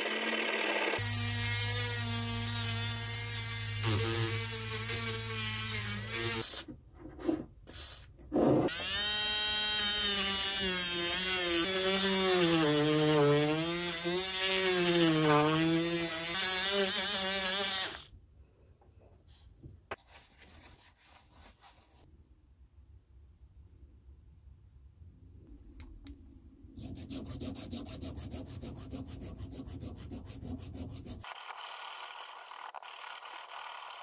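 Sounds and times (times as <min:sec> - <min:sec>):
rotary tool motor whine: 0:31.2 - 0:34.0.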